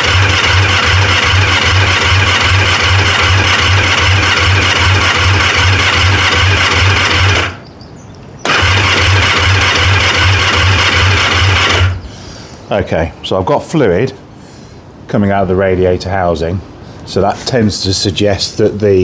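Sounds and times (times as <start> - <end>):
starter motor cranking engine: 0.0 - 7.6, 8.4 - 12.0.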